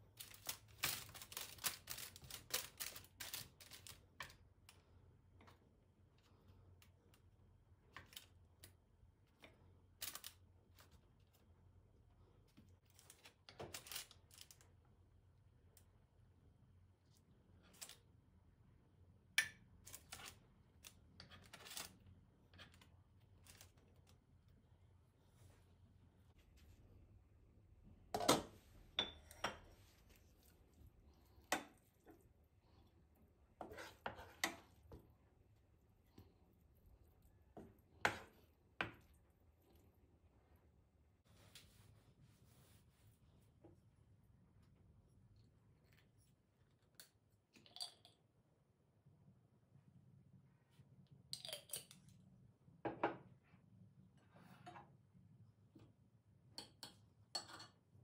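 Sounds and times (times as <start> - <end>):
dishes and utensils clinking: 28.2 - 29.8, 56.6 - 57.9.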